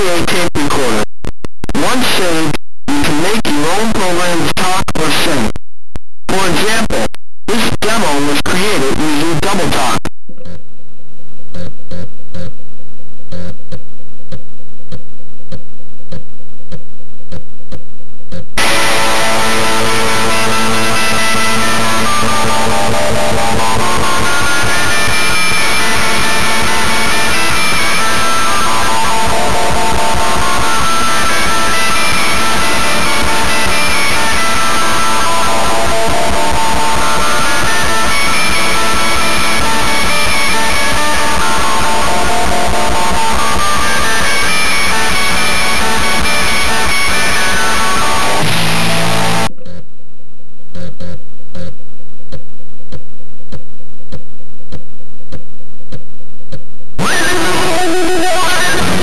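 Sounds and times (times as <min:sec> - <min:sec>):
low-fidelity rock song with guitar: 0:18.6 - 0:49.5, 0:57.0 - 0:59.0.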